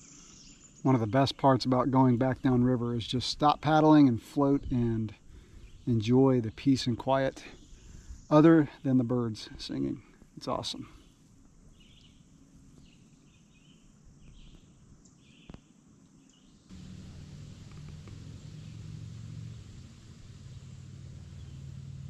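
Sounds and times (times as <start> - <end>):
birds chirping: 4.6 - 22.0
quiet river ambience: 10.0 - 22.0
steady low rumble: 16.7 - 22.0.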